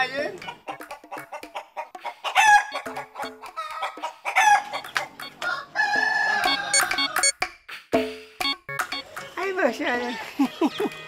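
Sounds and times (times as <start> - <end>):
chickens clucking: 0.0 - 7.4
rooster crowing: 2.2 - 2.9, 3.6 - 7.3.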